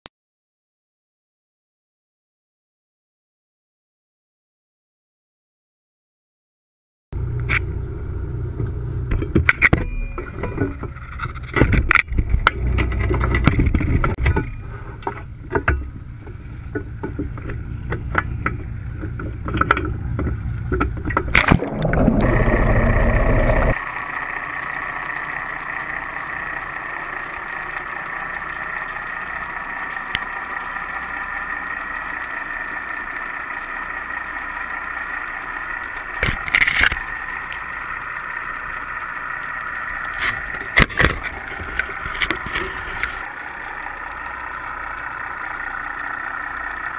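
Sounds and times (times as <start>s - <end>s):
muffled underwater hum: 7.2s - 46.9s
high whine: 21.2s - 46.9s.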